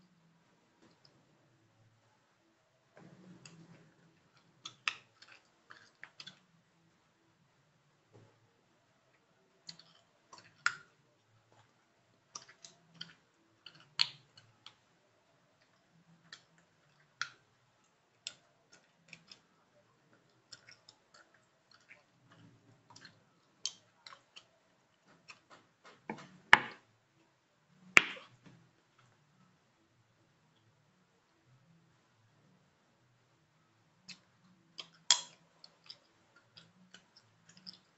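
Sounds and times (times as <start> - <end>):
chewing gum smacking and snapping: 3.4 - 6.5, 9.6 - 14.9, 15.6 - 26.8, 34.0 - 37.9.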